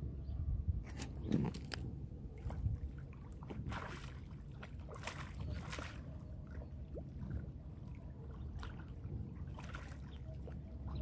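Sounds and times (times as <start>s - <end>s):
low steady rumble: 0.0s - 11.0s
fish splashing in water: 1.2s - 11.0s.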